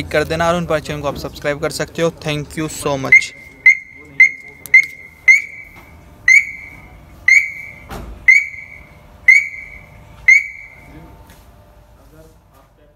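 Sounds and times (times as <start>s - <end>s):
car alarm beeping: 3.0s - 10.9s.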